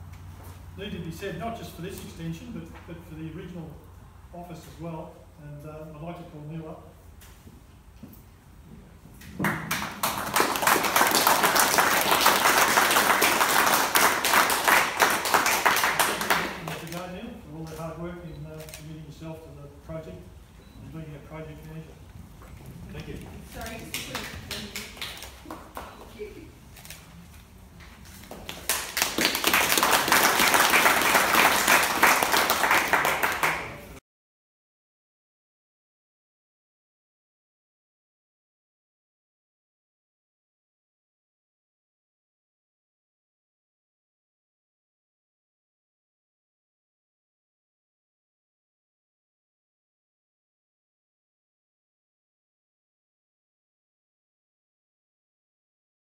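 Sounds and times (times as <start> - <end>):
audience applauding: 9.4 - 16.8, 28.4 - 34.0.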